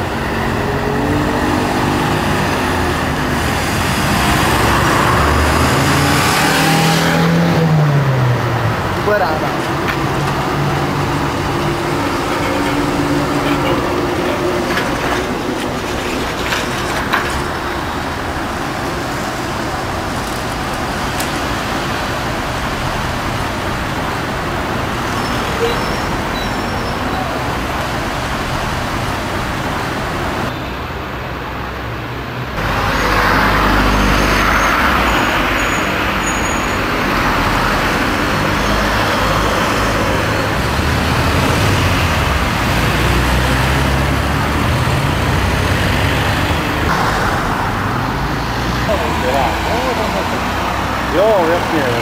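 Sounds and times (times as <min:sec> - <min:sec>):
road traffic noise: 0:00.0 - 0:52.0
trolleybus moving slowly: 0:00.0 - 0:52.0.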